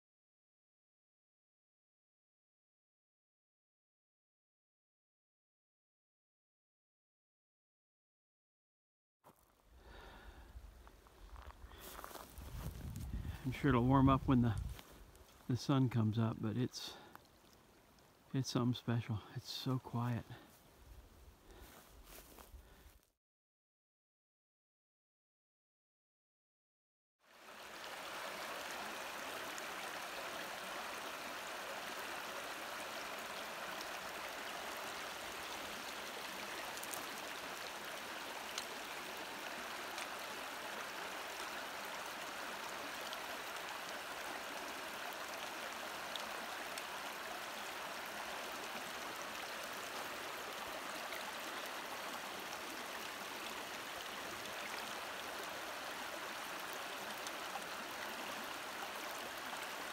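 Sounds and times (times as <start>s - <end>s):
river rushing over rocks: 27.3s - 59.9s.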